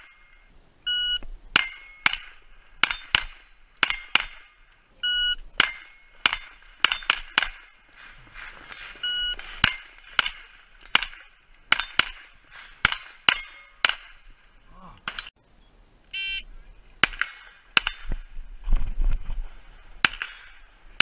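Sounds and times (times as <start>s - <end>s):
steel plate ringing: 1.5s - 4.7s, 12.8s - 14.0s
carbine gunshots: 1.6s - 4.6s, 5.5s - 7.8s, 8.7s - 14.3s, 17.0s - 18.1s, 20.0s - 21.0s
short high electronic beep: 16.2s - 16.4s.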